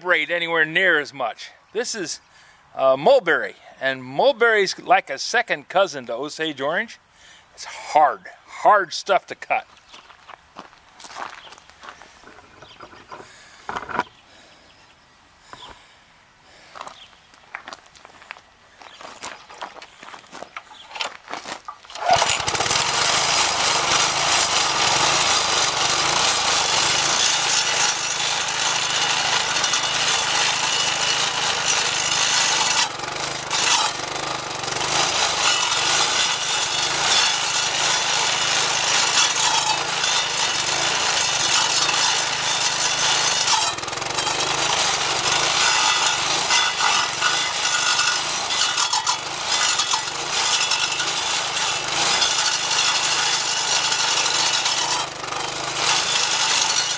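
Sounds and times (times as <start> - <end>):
saw blade grinding stump: 12.3 - 14.1, 21.0 - 56.9.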